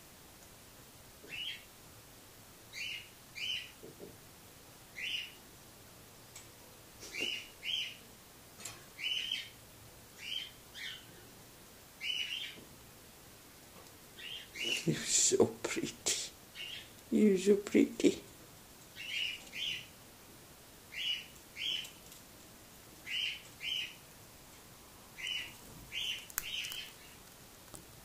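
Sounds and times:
cockatiel chirping: 0:01.3 - 0:01.6, 0:05.0 - 0:05.4, 0:07.0 - 0:08.0, 0:09.0 - 0:09.5, 0:10.2 - 0:11.1, 0:12.0 - 0:12.6, 0:14.2 - 0:14.8, 0:19.0 - 0:19.9, 0:20.9 - 0:21.9, 0:23.0 - 0:24.0, 0:25.2 - 0:27.2.

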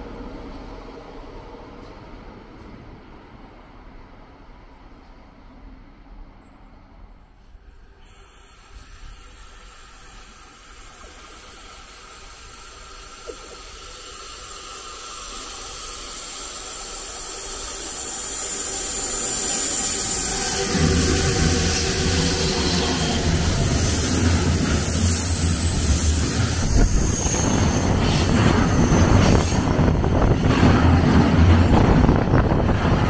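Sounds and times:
rail hiss: 0:07.2 - 0:33.0.

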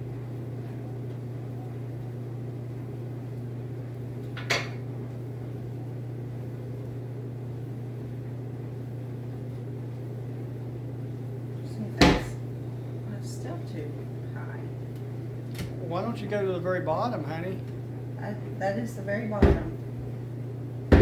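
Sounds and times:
steady low hum: 0:00.0 - 0:21.0
knock on wooden cabinet: 0:19.4 - 0:19.7.

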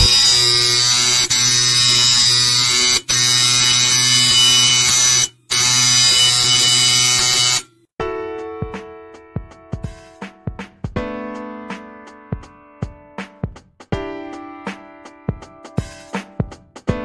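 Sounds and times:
marking stylus buzzing: 0:00.0 - 0:07.7
piano-like music: 0:08.0 - 0:17.0.

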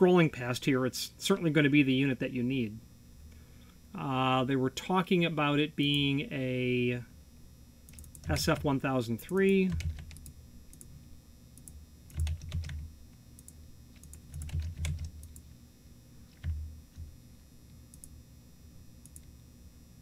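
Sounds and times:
keyboard typing: 0:07.9 - 0:08.7, 0:09.7 - 0:10.9, 0:11.6 - 0:15.4, 0:16.3 - 0:17.1.

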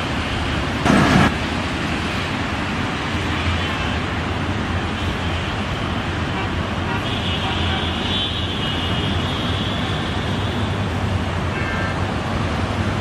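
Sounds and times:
train rumble: 0:00.0 - 0:02.5
diesel locomotive engine drone: 0:00.0 - 0:06.9.

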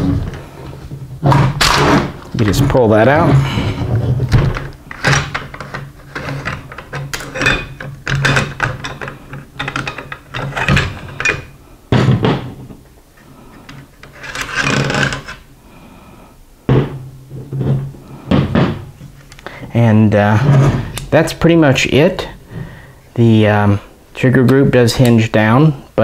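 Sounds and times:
rifle parts clicking and scraping: 0:13.6 - 0:15.4.

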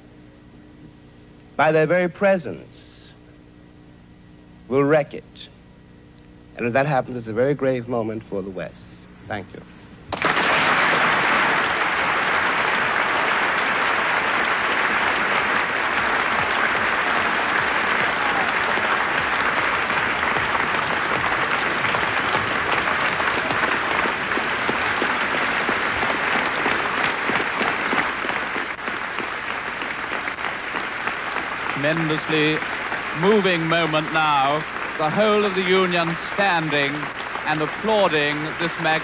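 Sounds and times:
audience applauding: 0:10.1 - 0:39.0.

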